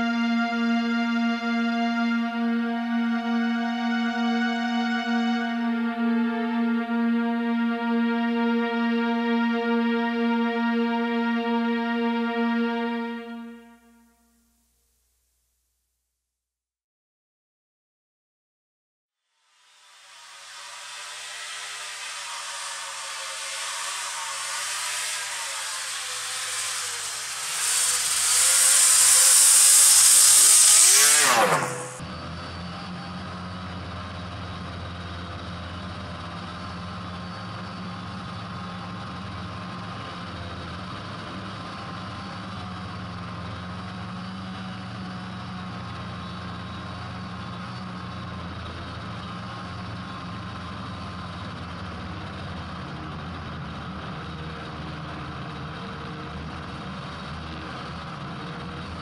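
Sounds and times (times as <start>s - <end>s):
snowmobile passing by: 19.7s - 32.2s
snowmobile engine drone on board: 19.8s - 59.0s.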